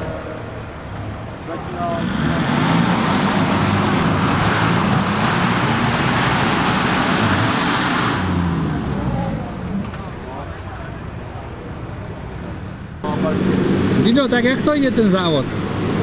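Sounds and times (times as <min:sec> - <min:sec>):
broad rushing noise: 0:00.0 - 0:10.2
off-road vehicle engine revving: 0:01.4 - 0:10.2, 0:13.0 - 0:16.0.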